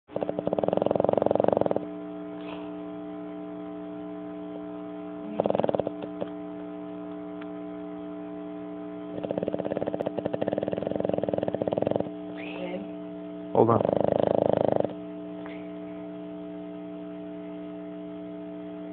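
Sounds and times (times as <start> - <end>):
dog snoring: 0.1 - 2.9, 5.2 - 6.4, 9.0 - 12.9, 13.5 - 15.7
electrical hum: 0.1 - 18.9.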